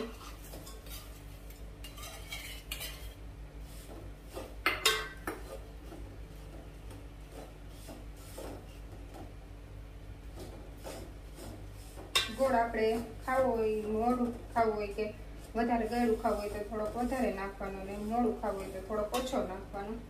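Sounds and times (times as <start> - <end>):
spoon scraping metal pot: 0.0 - 3.2, 10.8 - 13.5, 15.5 - 19.5.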